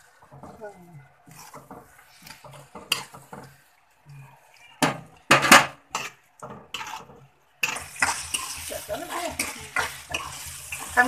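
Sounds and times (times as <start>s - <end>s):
spatula scraping metal pan: 1.2s - 3.5s, 5.9s - 11.0s
meat frying in oil: 1.2s - 11.0s.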